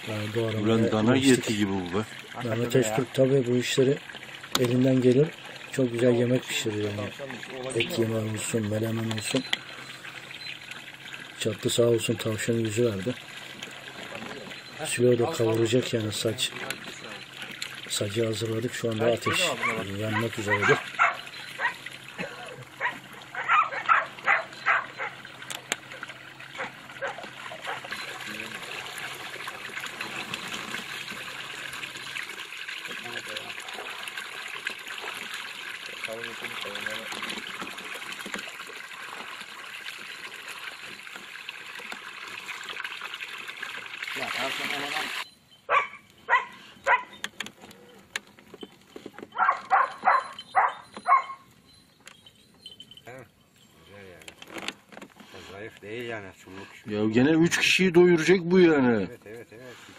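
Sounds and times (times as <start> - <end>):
dog barking: 19.2 - 21.8, 22.8 - 25.2, 26.6 - 27.9, 33.7 - 34.0, 45.7 - 47.2, 49.4 - 51.4.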